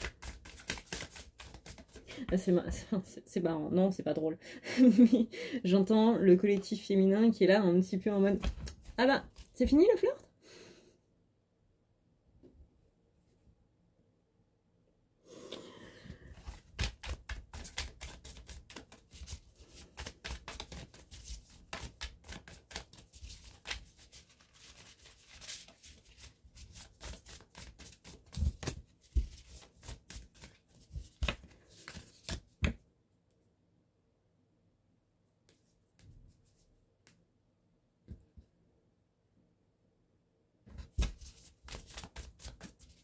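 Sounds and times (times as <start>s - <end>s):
cards being shuffled: 0.0s - 2.3s, 8.3s - 9.6s, 16.3s - 32.8s, 40.7s - 43.0s.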